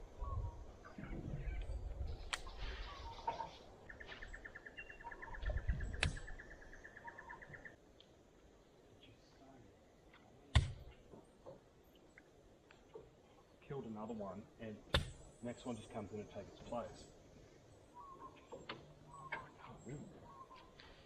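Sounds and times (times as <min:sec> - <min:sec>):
bird trilling: 0:02.4 - 0:07.8, 0:17.9 - 0:20.8.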